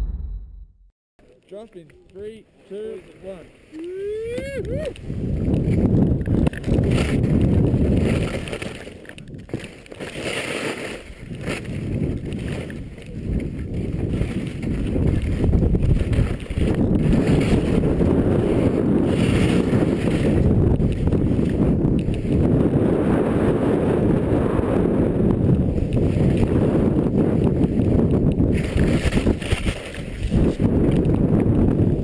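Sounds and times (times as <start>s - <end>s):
wind buffeting microphone: 4.2s - 9.6s, 11.1s - 32.0s.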